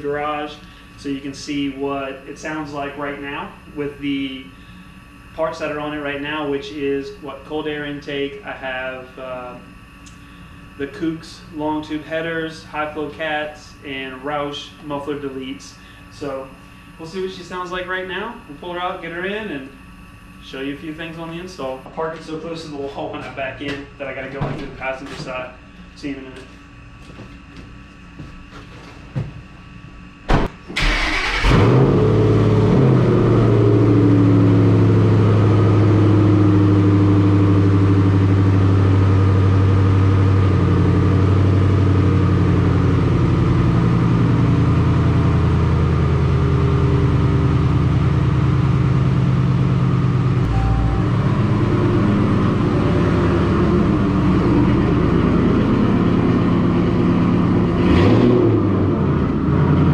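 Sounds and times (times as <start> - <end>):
car engine starting and idling: 30.6 - 59.9.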